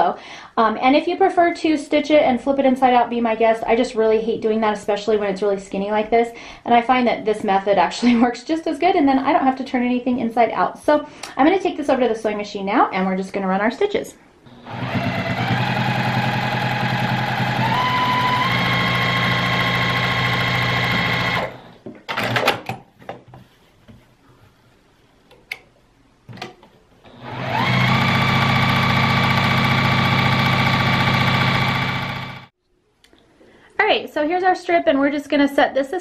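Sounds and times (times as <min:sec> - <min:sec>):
sewing machine running: 0:14.5 - 0:22.4, 0:27.1 - 0:32.5.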